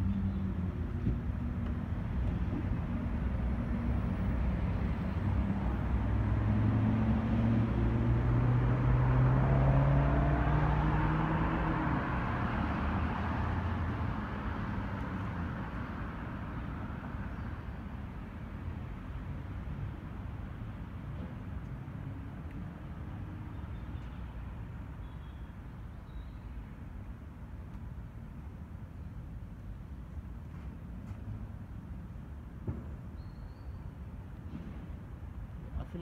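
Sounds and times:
motor vehicle passing: 5.4 - 15.4.

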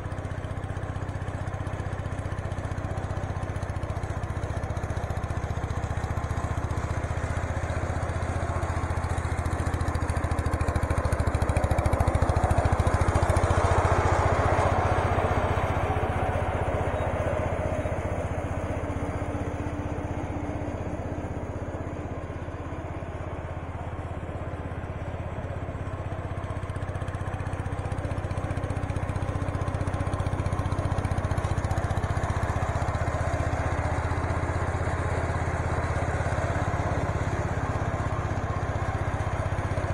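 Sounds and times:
garden tractor engine running: 0.0 - 39.9
mower deck cutting grass: 3.2 - 17.6, 28.2 - 39.9.

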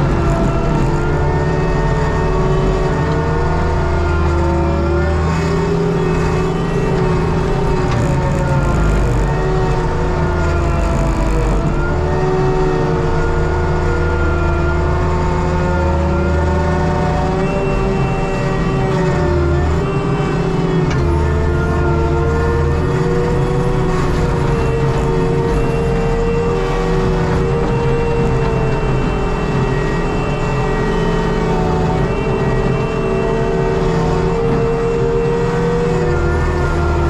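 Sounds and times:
mulcher drum whining: 0.0 - 14.9
engine and hydraulic drone: 0.0 - 37.0.

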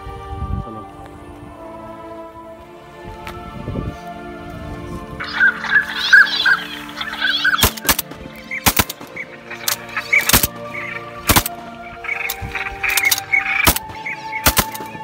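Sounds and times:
background music: 0.0 - 15.0
ducks calling: 5.2 - 15.0
shotgun shots: 7.5 - 10.5, 11.3 - 11.6, 12.9 - 15.0.

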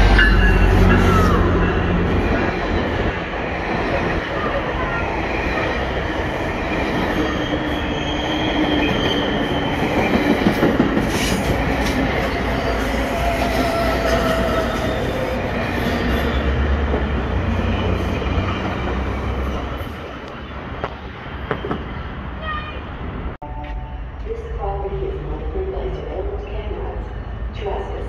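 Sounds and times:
train rail rumble: 0.0 - 28.0
wheel squeals: 7.0 - 10.4.

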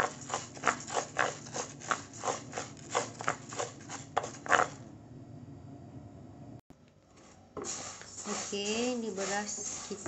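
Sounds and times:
spatula stirring rice in pan: 0.0 - 4.8, 7.1 - 10.0.

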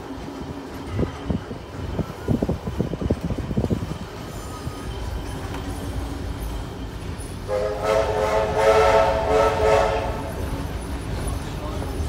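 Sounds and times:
train rolling rumble: 0.0 - 12.0
steam locomotive whistle: 7.5 - 10.4.

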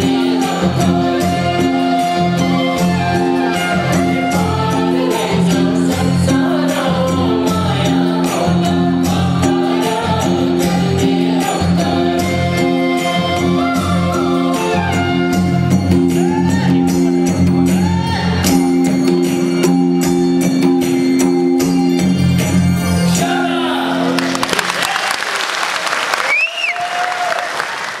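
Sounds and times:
person singing: 0.0 - 18.4, 23.2 - 24.8
audience applause: 24.2 - 28.0.

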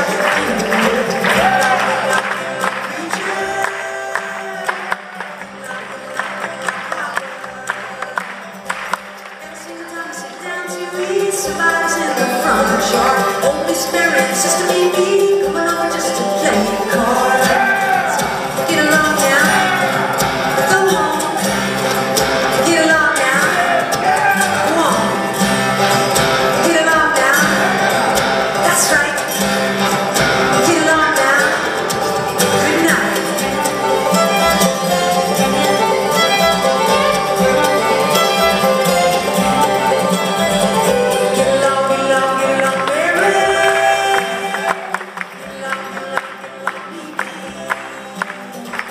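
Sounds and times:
woman singing: 0.0 - 6.2, 9.4 - 19.9, 20.6 - 21.4, 22.5 - 24.0, 24.6 - 25.3, 26.5 - 28.0, 28.6 - 29.3, 30.5 - 34.0, 41.1 - 48.9
fiddle: 0.0 - 45.6
banjo: 0.0 - 48.9
bluegrass band playing: 0.0 - 48.9.

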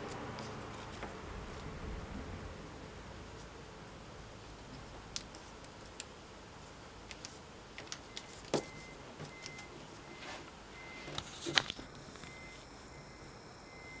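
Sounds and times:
paper rustling and crinkling: 0.0 - 1.8, 11.1 - 12.3.

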